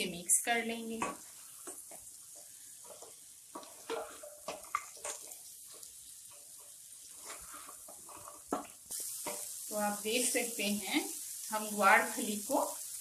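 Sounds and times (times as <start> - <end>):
beans sizzling in a pan: 0.0 - 13.0
wooden spatula scraping a pan: 0.9 - 9.6.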